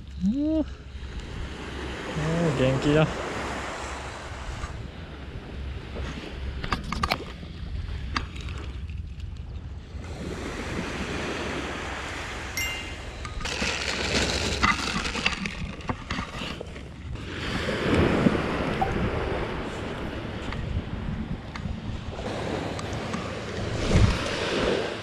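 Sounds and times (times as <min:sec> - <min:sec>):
waves washing on beach: 0:00.9 - 0:08.2, 0:09.9 - 0:25.0
fishing tackle clicks and rustles: 0:06.6 - 0:09.8, 0:12.6 - 0:17.2
wind noise: 0:09.4 - 0:25.0.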